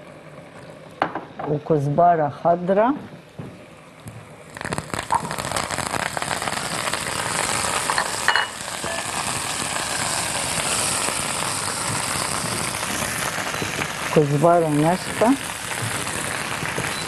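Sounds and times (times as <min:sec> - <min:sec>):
garlic sizzling in hot oil: 0:04.4 - 0:17.0.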